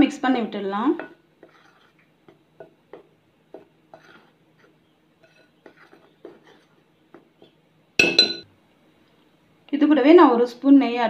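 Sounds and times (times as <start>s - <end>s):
spoon scraping glass bowl: 1.4s - 7.6s
spoon clinking on glass: 8.0s - 8.5s.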